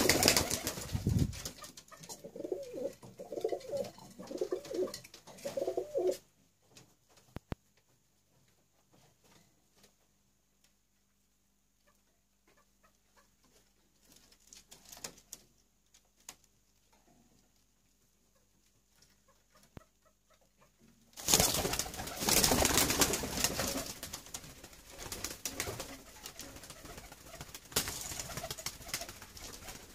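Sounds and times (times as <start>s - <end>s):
noisy rustling: 0.0s - 1.9s
pigeons cooing: 2.2s - 6.2s.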